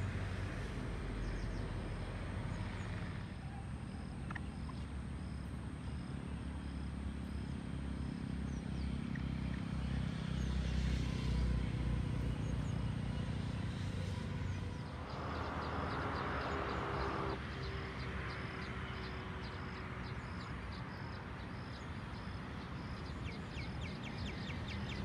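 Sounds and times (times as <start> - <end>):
low outdoor rumble: 0.0 - 18.4.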